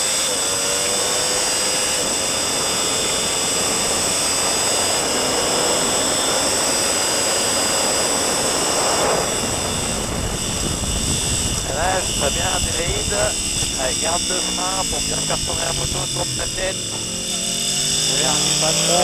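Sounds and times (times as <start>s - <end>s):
motorcycle engine at full throttle: 0.0s - 19.0s
wind rushing: 4.6s - 14.0s.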